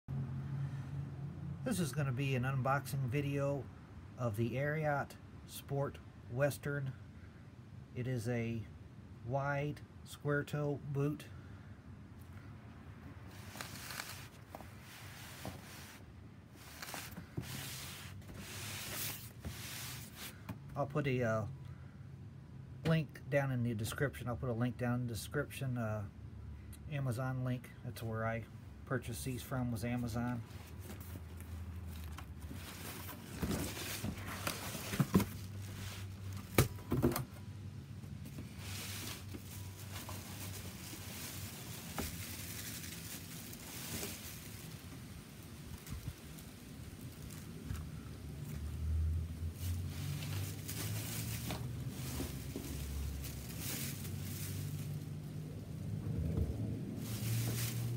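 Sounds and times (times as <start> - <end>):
plastic wrapping crinkling: 13.3 - 15.8, 39.1 - 47.8, 50.2 - 55.2
cardboard box scraping on pebbles: 13.3 - 20.4, 32.0 - 36.5, 49.6 - 55.0
cardboard box knocks and scrapes: 32.5 - 35.7.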